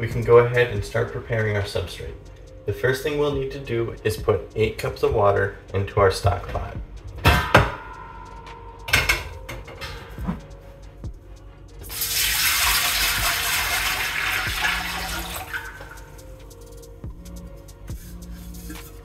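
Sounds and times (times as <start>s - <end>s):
metal pot lid clanks: 7.3s - 10.4s
water pouring into pot: 11.8s - 16.2s.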